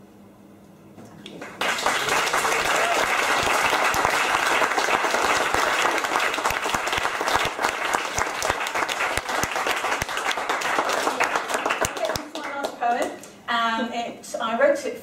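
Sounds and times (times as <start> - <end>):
audience applauding: 1.4 - 13.1.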